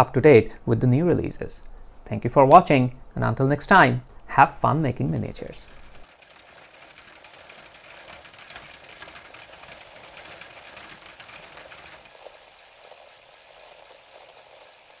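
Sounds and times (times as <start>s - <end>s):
film projector clatter: 5.1s - 15.0s.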